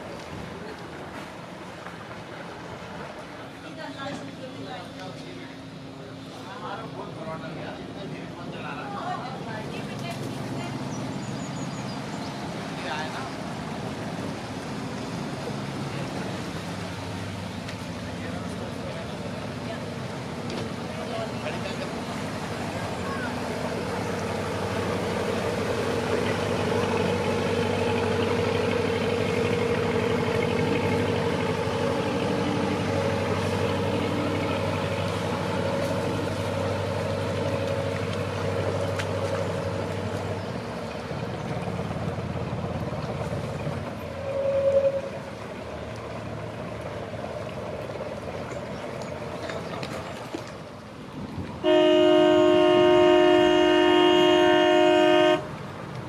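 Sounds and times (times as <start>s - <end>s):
boat engines humming: 0.0s - 56.0s
boat horn: 23.0s - 39.6s, 44.0s - 45.7s, 51.6s - 55.7s.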